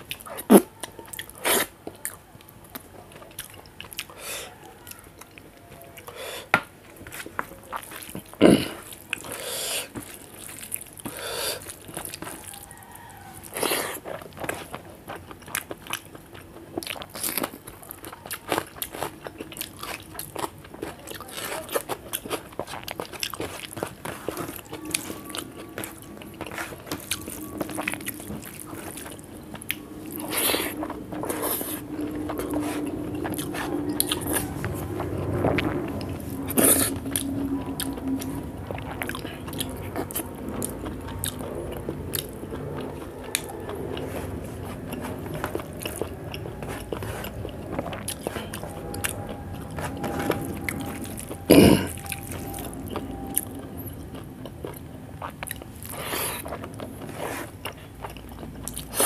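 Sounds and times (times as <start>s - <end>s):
chewing and mouth smacks: 0.0s - 59.0s.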